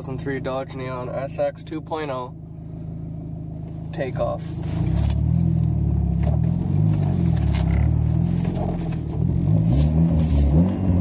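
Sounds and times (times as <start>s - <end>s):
car engine accelerating hard: 4.2s - 11.0s.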